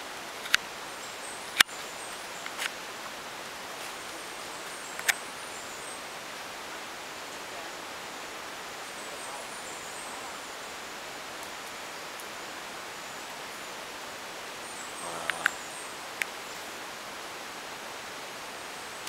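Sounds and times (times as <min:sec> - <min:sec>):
forest background hiss: 0:00.0 - 0:19.0
sharp clicks: 0:15.1 - 0:15.6.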